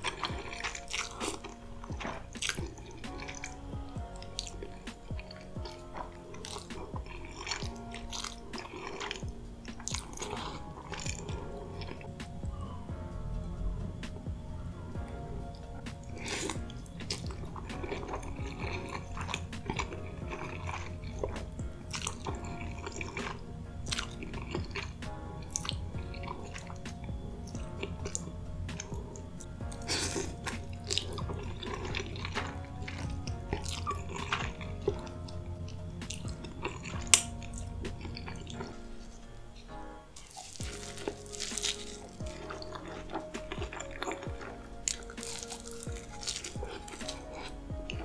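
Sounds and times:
noodles slurped and chewed: 0:00.0 - 0:12.2, 0:15.0 - 0:39.2, 0:40.2 - 0:48.0
background music: 0:00.0 - 0:48.0
wet clicks and crackles: 0:40.2 - 0:43.7.

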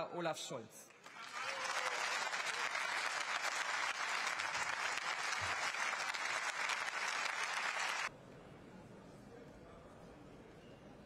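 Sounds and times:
crowd clapping: 0:00.9 - 0:08.1.

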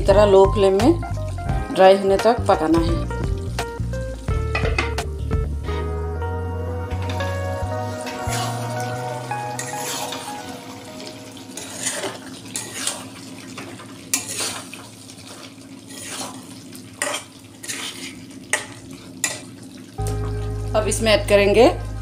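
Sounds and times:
curry sizzling: 0:00.0 - 0:22.0
spatula scraping metal pan: 0:07.0 - 0:08.9, 0:09.6 - 0:10.4, 0:11.6 - 0:14.8, 0:15.9 - 0:19.4.

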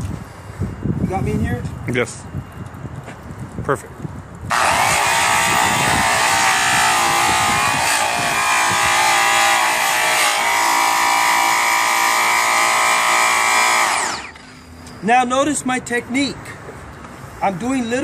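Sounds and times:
polisher whining: 0:04.5 - 0:14.5.

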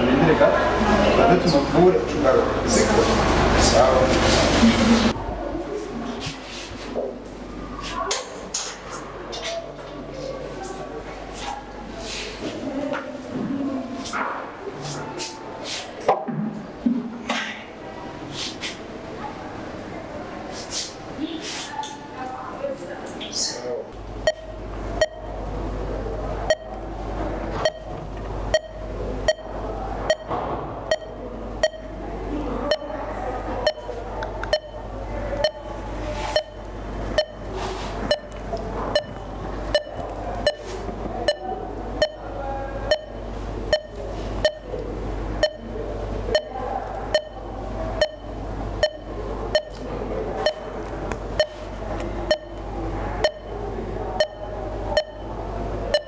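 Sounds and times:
low steady hum: 0:23.6 - 0:56.0
heart monitor beeping: 0:24.0 - 0:25.6, 0:26.4 - 0:32.0, 0:32.6 - 0:56.0.

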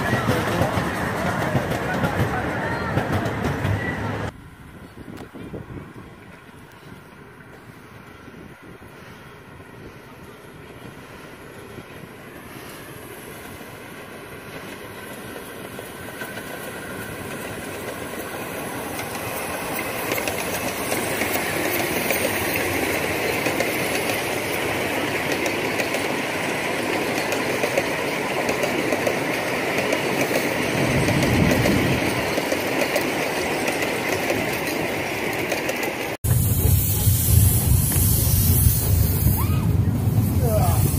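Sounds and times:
miniature train wheels clattering: 0:14.5 - 0:39.0.

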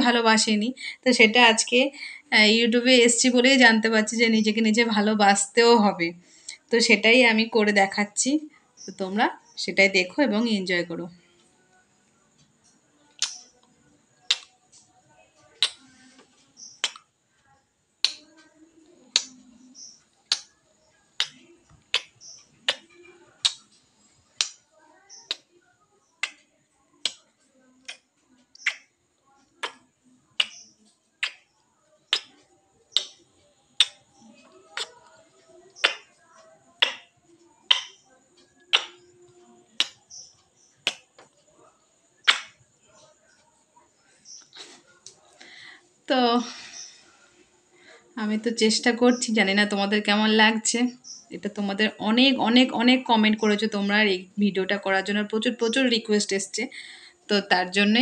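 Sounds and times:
kissing lip smacks: 0:13.2 - 0:13.4, 0:14.3 - 0:14.5, 0:15.6 - 0:15.9, 0:16.8 - 0:17.1, 0:19.1 - 0:19.4, 0:21.2 - 0:22.1, 0:22.7 - 0:23.7, 0:27.8 - 0:28.0, 0:28.6 - 0:28.9, 0:29.6 - 0:30.6, 0:31.2 - 0:31.4, 0:32.1 - 0:33.2, 0:33.8 - 0:34.0, 0:34.8 - 0:35.0, 0:35.8 - 0:36.1, 0:36.8 - 0:37.0, 0:37.7 - 0:37.9, 0:38.7 - 0:39.0, 0:39.8 - 0:40.0, 0:42.2 - 0:42.6.

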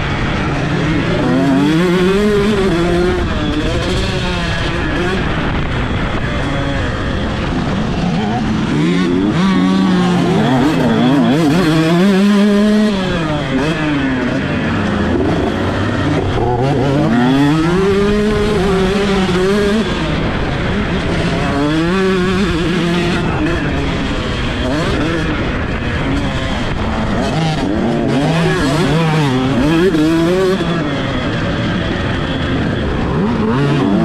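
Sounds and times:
motocross bike engine revving: 0:00.0 - 0:34.0.

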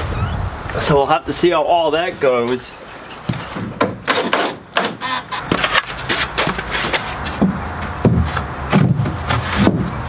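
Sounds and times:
wooden boards knocking: 0:03.3 - 0:10.0
cordless drill driving screws: 0:05.0 - 0:05.5.

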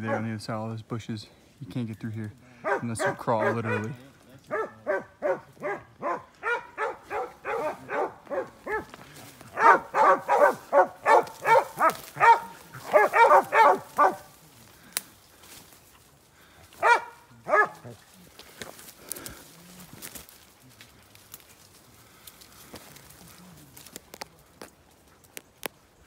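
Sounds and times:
dogs barking: 0:00.0 - 0:00.4, 0:02.6 - 0:14.8, 0:16.7 - 0:18.1.

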